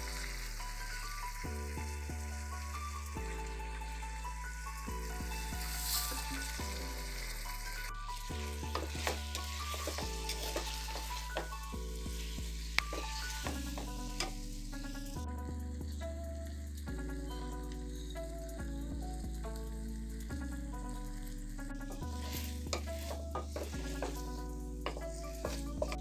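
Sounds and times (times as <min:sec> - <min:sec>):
food sizzling in hot oil: 0:00.0 - 0:15.2, 0:15.9 - 0:26.0
spatula scraping a pan: 0:08.3 - 0:14.6, 0:22.0 - 0:26.0.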